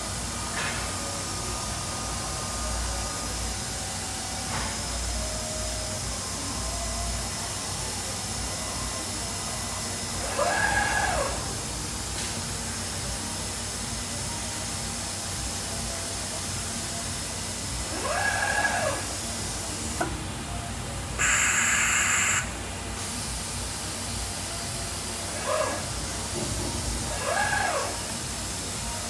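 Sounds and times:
cnc router hissing: 1.4 - 12.0, 14.2 - 20.3, 21.2 - 29.0
motor whine rising and falling: 10.1 - 11.7, 17.8 - 20.1, 25.3 - 28.4.

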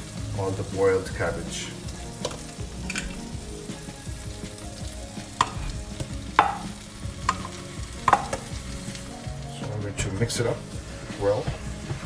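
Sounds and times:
food sizzling in pot: 0.0 - 12.0
sharp knocks against pot: 5.4 - 5.7, 6.4 - 8.4.

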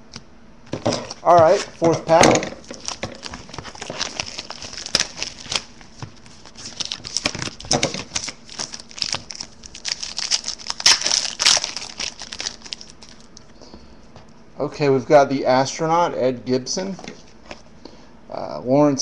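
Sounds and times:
wrapper tearing and crinkling: 0.9 - 13.4.

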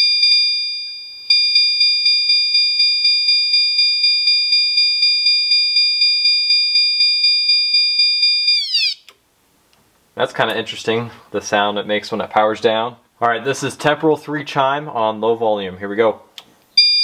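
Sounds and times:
fire alarm electronic chime: 0.0 - 9.1, 16.8 - 17.0.

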